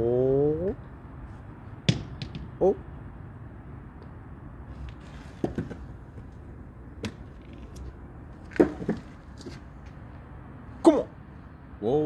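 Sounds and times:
ball bouncing on concrete: 1.8 - 2.8, 5.4 - 6.4, 7.0 - 7.9, 8.5 - 9.6.

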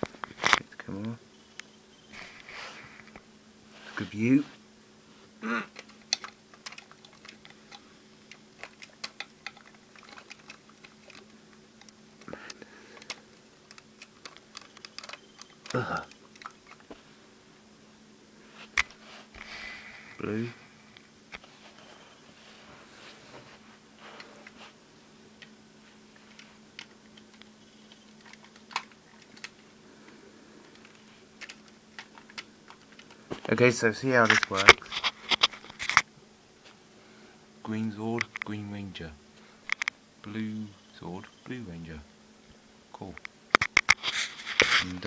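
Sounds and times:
plastic toy parts clicking: 5.8 - 16.6.

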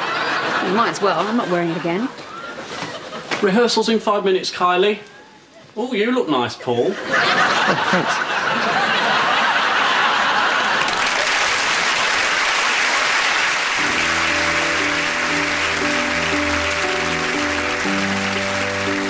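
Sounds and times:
audience applauding: 7.3 - 19.0
music with held chords: 13.8 - 19.0.

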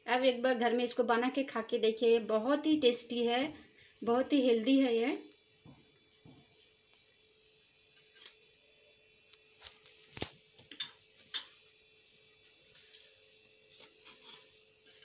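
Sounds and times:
utensils clicking on steel plate: 10.7 - 11.6.

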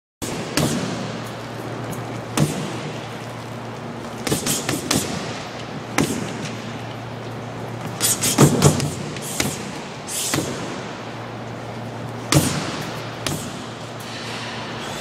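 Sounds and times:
boxing gloves punching heavy bag: 0.2 - 1.2, 2.3 - 3.0, 4.1 - 6.6, 7.9 - 10.9, 12.3 - 13.8
steady low hum: 0.2 - 15.0.

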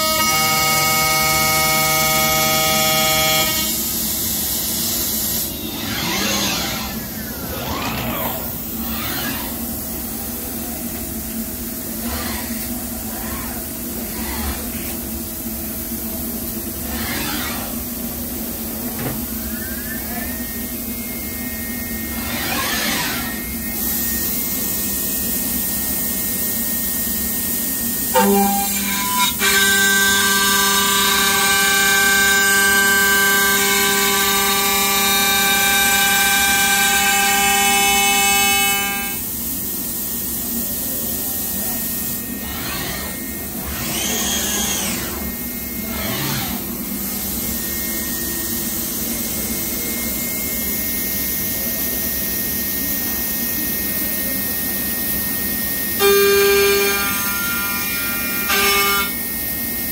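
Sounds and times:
machine cutting whine: 0.0 - 59.9
machine running with varying pitch: 0.0 - 59.9.

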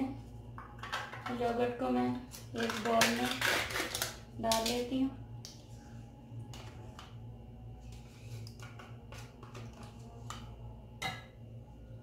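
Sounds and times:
low hum: 3.8 - 12.0.

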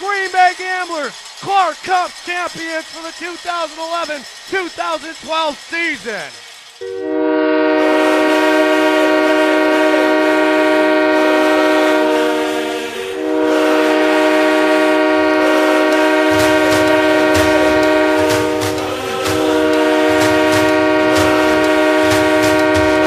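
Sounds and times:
goal horn blasts: 6.8 - 18.8, 19.4 - 23.0
low steady beat: 14.6 - 23.0.

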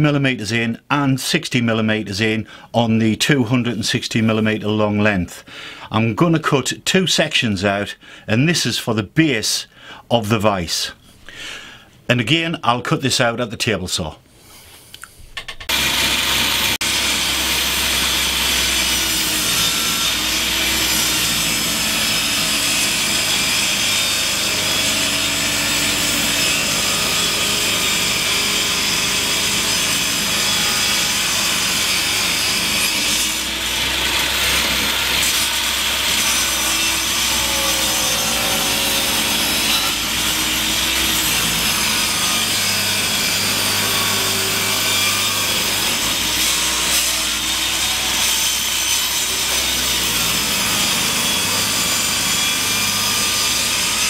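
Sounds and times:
table saw cutting wood: 15.4 - 54.0.

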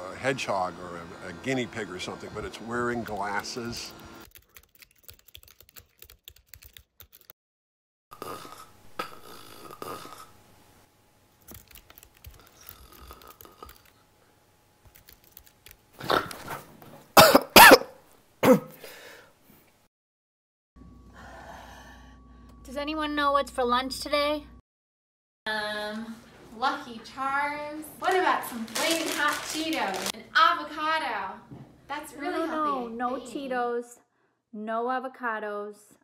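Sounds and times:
person coughing: 17.2 - 18.9.

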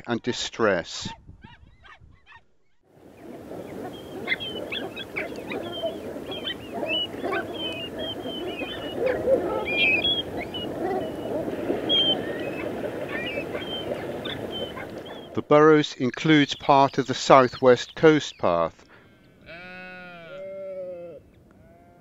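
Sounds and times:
flock of waterfowl chattering: 3.1 - 15.4.

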